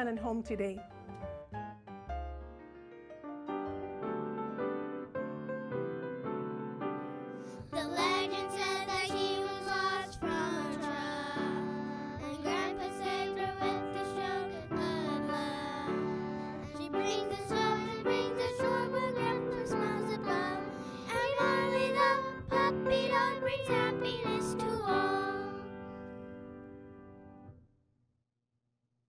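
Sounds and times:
piano accompaniment: 0.0 - 27.5
children singing: 7.7 - 25.8.

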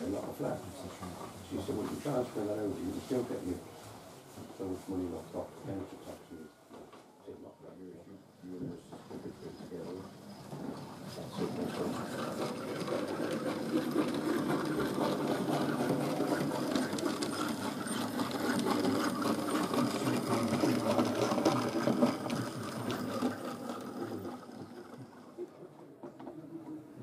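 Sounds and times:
model train motor whirring: 9.7 - 25.5
wheels ticking over rails: 9.7 - 26.8.

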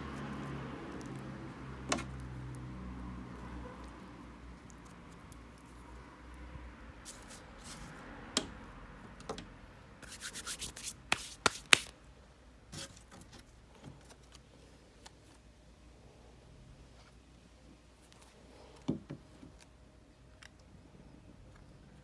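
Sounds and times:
card rubbing and rustling: 7.0 - 7.9, 10.0 - 12.0.

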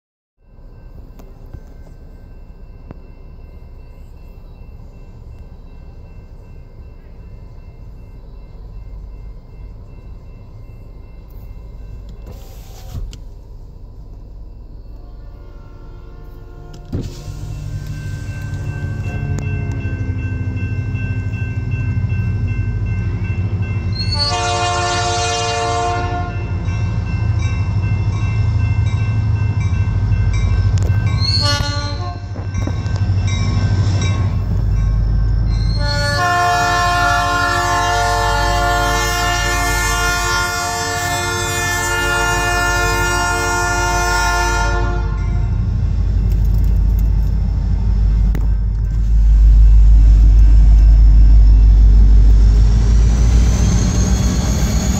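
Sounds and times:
locomotive air horn blasts: 14.9 - 18.0, 24.0 - 26.6, 31.2 - 32.4, 35.7 - 45.5
steady low rumble: 45.2 - 53.6.

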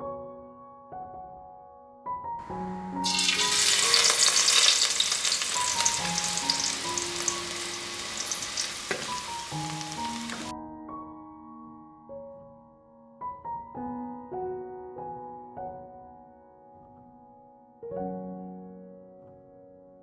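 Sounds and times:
soft piano music: 0.0 - 20.0
garlic sizzling in hot oil: 3.0 - 10.5.

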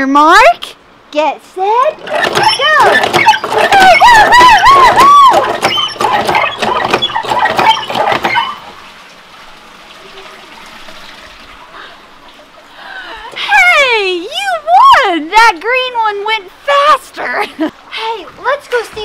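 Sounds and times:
hand pump squeaking: 2.0 - 8.7
pump handles clanking: 2.0 - 8.9
water running down troughs: 2.0 - 15.7.

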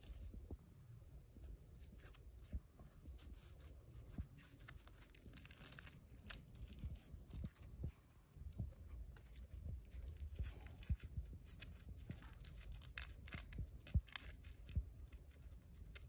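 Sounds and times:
bread tearing and crumbling: 3.1 - 7.6, 9.2 - 16.0.

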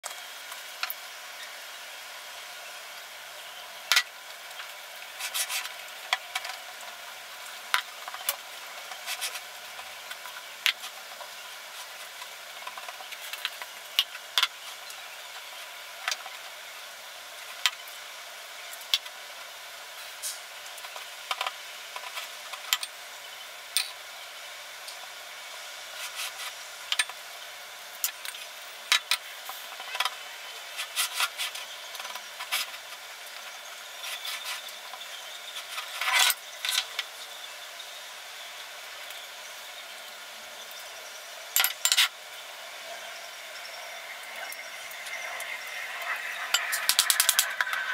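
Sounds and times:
steady hiss: 0.0 - 47.9
utensils scraping glass bowl: 43.8 - 47.9.

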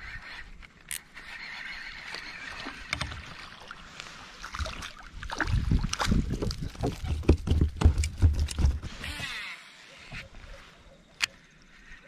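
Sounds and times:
fishing reel cranking: 0.0 - 3.1
water splashing: 2.4 - 7.8.

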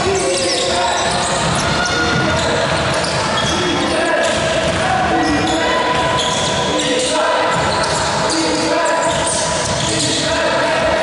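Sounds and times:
basketball dribbling: 0.0 - 6.7
court noise: 0.0 - 11.0
players' voices echoing: 0.0 - 11.0.

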